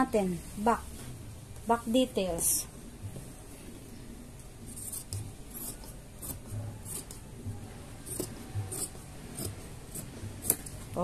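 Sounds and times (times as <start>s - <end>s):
scissors snipping through fabric: 4.7s - 7.2s, 8.0s - 10.8s.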